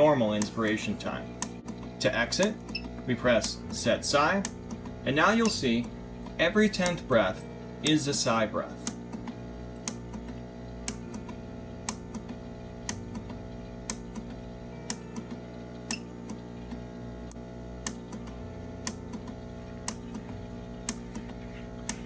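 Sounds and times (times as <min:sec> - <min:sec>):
background music: 0:00.0 - 0:10.0
ventilator clicking: 0:00.0 - 0:22.0.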